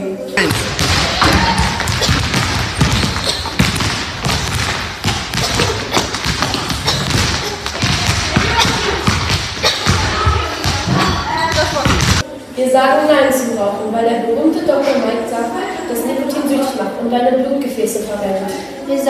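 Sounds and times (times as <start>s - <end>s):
feet landing: 0.5s - 12.2s
jump rope slapping floor: 1.8s - 10.0s.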